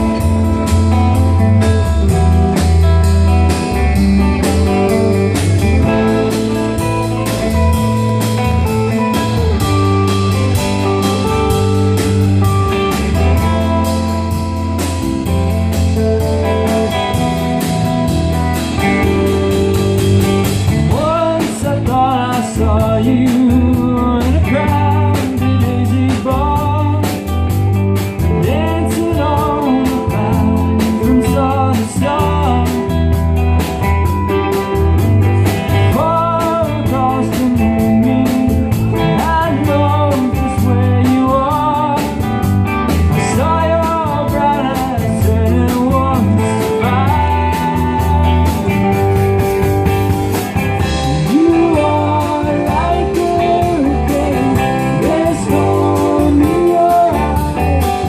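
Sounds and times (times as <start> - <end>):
drum kit: 0.0 - 58.0
electric guitars: 0.0 - 58.0
man singing: 20.6 - 27.4, 28.2 - 33.3, 35.6 - 49.0, 51.0 - 58.0.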